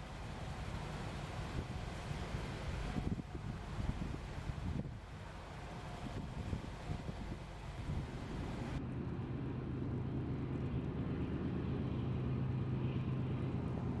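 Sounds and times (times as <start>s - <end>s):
engine hum: 0.0s - 14.0s
traffic noise: 0.0s - 14.0s
wind: 0.0s - 14.0s.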